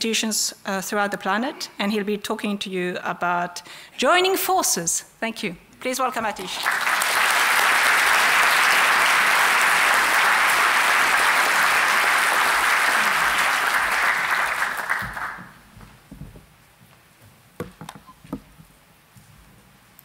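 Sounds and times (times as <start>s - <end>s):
audience applauding: 6.4s - 15.6s
soft knocks: 17.6s - 18.7s.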